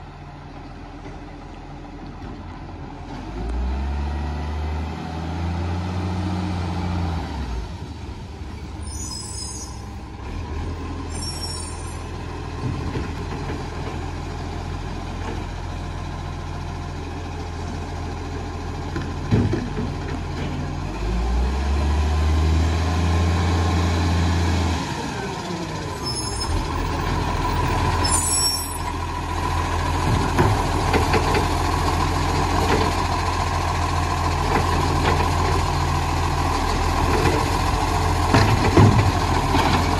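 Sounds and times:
air brakes hissing: 0:08.8 - 0:10.0
diesel truck engine running: 0:23.2 - 0:39.9.

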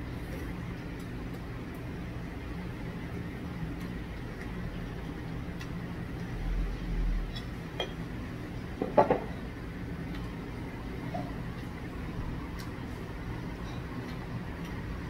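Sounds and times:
steady low hum: 0:00.0 - 0:15.0
dishes clinking: 0:07.3 - 0:08.0, 0:08.8 - 0:09.3.

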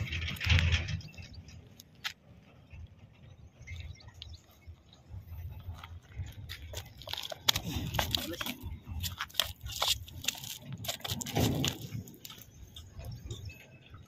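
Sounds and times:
low rumble: 0:00.0 - 0:09.2.

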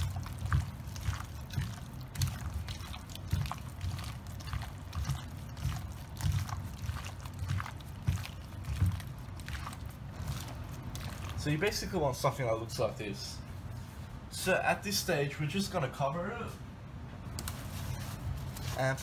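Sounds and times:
sharp wet smacks: 0:00.0 - 0:11.4
wet squelching and slopping: 0:00.0 - 0:11.8.

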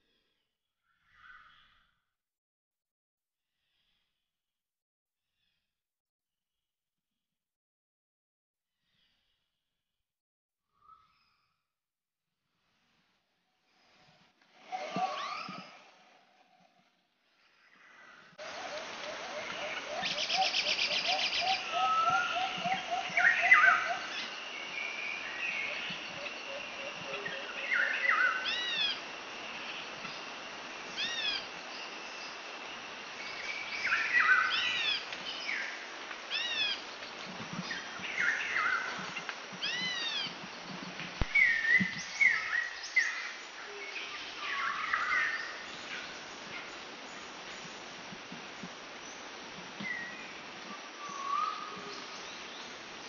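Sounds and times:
songbirds chirping: 0:14.0 - 0:53.0.

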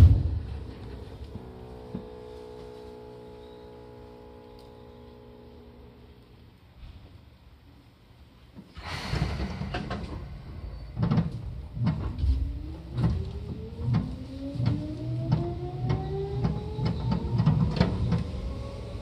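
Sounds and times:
train air hiss: 0:08.7 - 0:11.0
train wheels thumping over rail joints: 0:08.8 - 0:18.4
electric train motor whine rising: 0:11.7 - 0:19.0.

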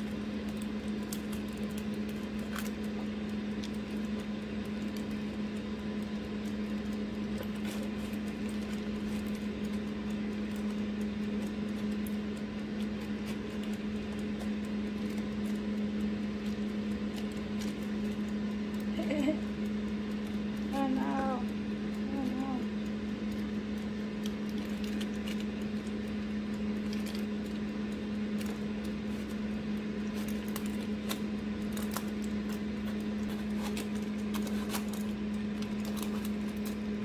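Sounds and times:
kitchen appliance humming: 0:00.0 - 0:37.0.

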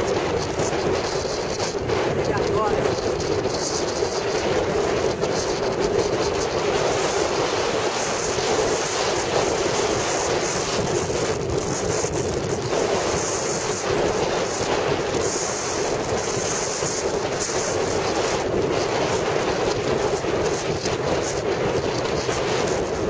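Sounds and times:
motorcycle running and road noise: 0:00.0 - 0:23.0
wind buffeting microphone: 0:00.0 - 0:23.0.

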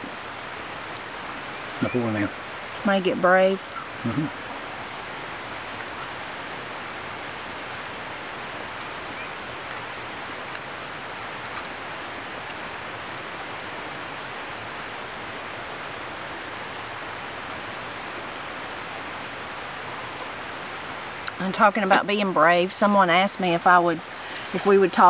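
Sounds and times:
outdoor background hiss: 0:00.0 - 0:25.0
faint bird chirps: 0:17.8 - 0:21.2.

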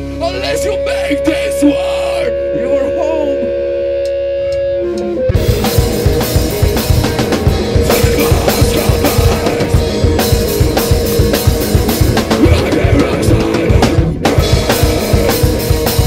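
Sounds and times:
live rock band: 0:00.0 - 0:16.0
sustained guitar tone: 0:00.0 - 0:16.0
fast driving drum beat: 0:05.3 - 0:16.0.

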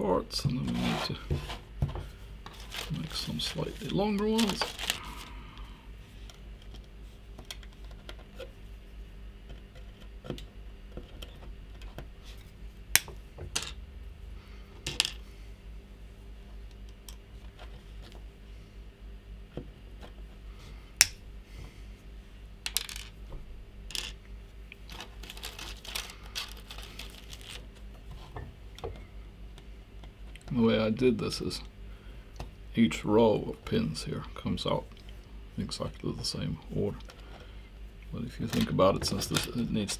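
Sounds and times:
pieces tapping on desk: 0:22.6 - 0:23.1.

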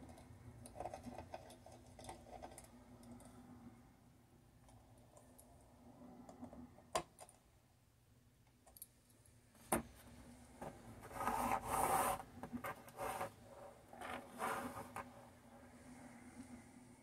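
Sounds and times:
rubbing and scraping: 0:11.0 - 0:15.2.

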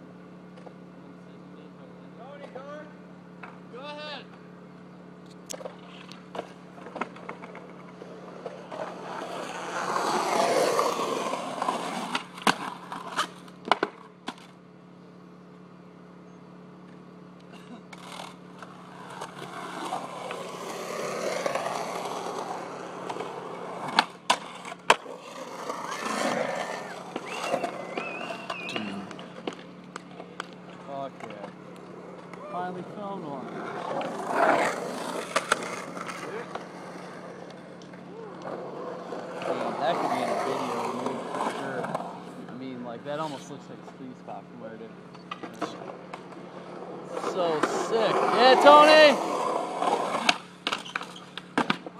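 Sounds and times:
steady low hum: 0:00.0 - 0:48.4
skateboard wheels rolling on concrete: 0:02.6 - 0:15.8, 0:16.6 - 0:51.9
skateboard clacking: 0:33.8 - 0:38.6.

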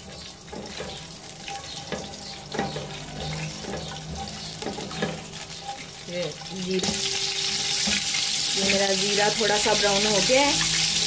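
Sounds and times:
spatula scraping a metal pot: 0:00.0 - 0:08.4
spices sizzling in hot oil: 0:00.0 - 0:11.0.

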